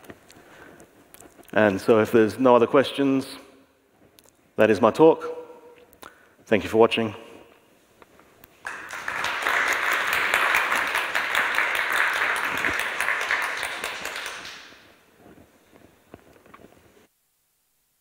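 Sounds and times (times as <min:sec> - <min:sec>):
audience applauding: 0:08.6 - 0:14.8.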